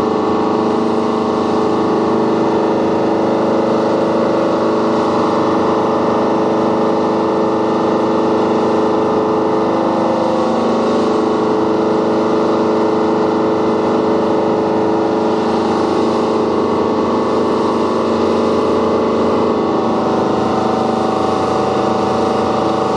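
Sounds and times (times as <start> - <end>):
motorboat engine droning: 0.0 - 22.9
water rushing from wake: 9.1 - 22.9.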